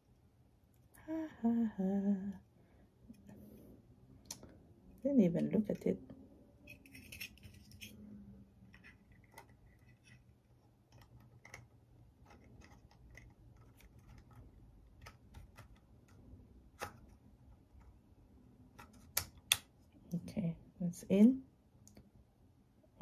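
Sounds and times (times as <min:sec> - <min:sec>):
hands handling packaging clicks: 0:08.7 - 0:17.9.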